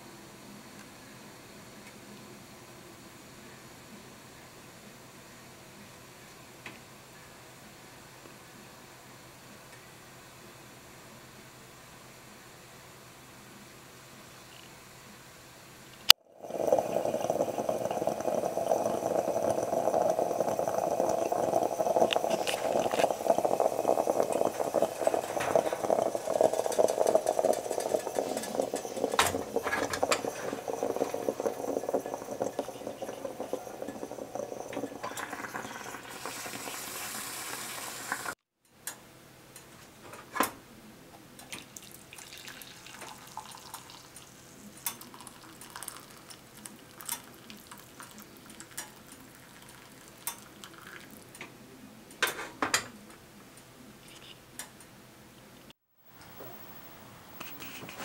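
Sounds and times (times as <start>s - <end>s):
stovetop coffee maker gurgling: 16.1s - 38.4s, 41.4s - 51.5s, 56.0s - 58.0s.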